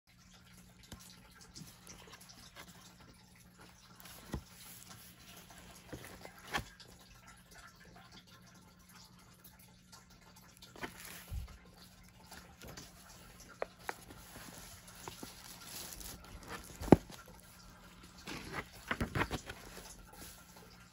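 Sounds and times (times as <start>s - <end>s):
paper pages turning: 3.9s - 6.8s, 10.8s - 11.6s, 12.2s - 20.7s.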